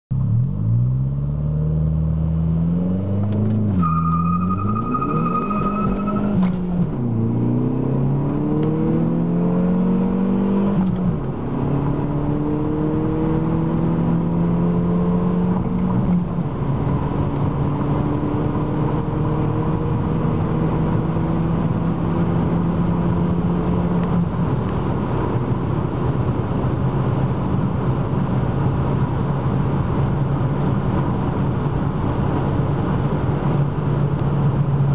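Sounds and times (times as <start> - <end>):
car engine accelerating: 0.1 - 34.9.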